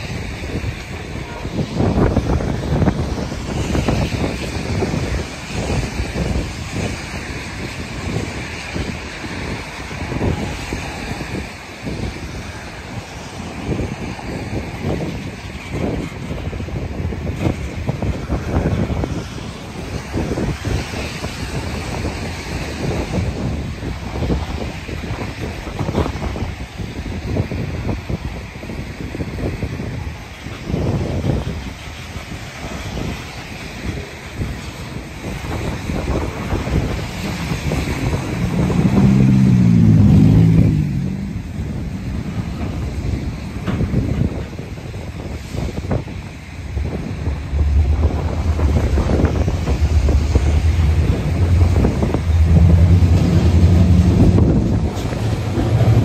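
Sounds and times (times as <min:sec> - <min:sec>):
freight train rolling past: 0:00.0 - 0:56.0
wind buffeting microphone: 0:00.0 - 0:56.0
engine drone: 0:31.3 - 0:56.0.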